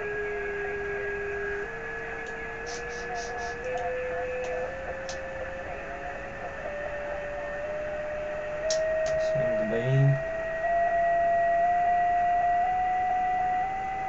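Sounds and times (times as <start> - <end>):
higher steady tone: 0.0 - 14.0
radio hiss: 0.3 - 10.2.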